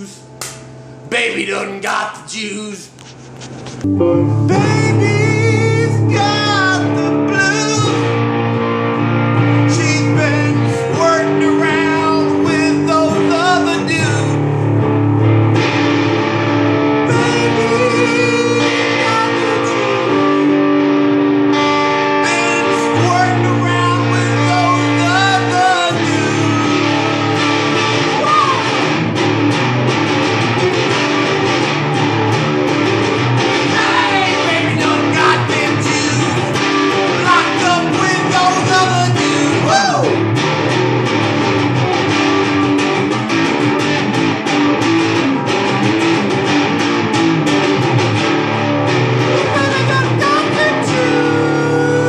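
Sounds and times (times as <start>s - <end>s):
person singing wordlessly: 1.1s - 2.9s, 4.4s - 8.2s, 9.5s - 14.4s, 17.1s - 20.6s, 22.2s - 27.2s, 33.6s - 40.3s, 49.3s - 52.0s
low bass backing: 2.9s - 18.4s, 22.7s - 52.0s
blues-rock electric guitar: 3.0s - 52.0s.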